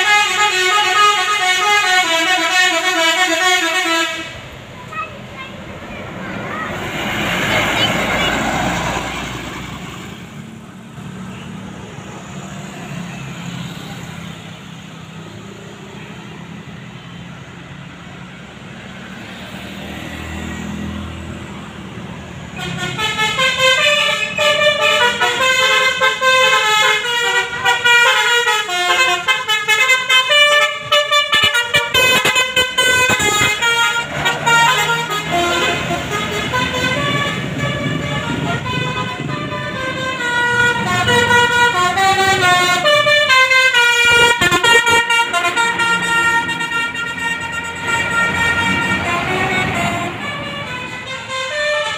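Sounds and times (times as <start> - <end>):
multi-tone bus horn melody: 0.0 - 5.7, 6.4 - 10.3, 22.4 - 51.9
bus engine passing: 0.0 - 51.9
traffic rumble: 0.0 - 51.9.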